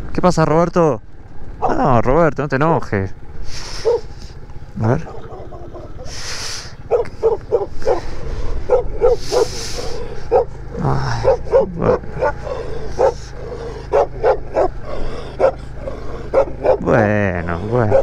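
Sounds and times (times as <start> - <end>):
motorcycle engine humming: 0.0 - 18.0
dog barking rapidly: 3.8 - 4.2, 4.8 - 6.2, 6.8 - 18.0.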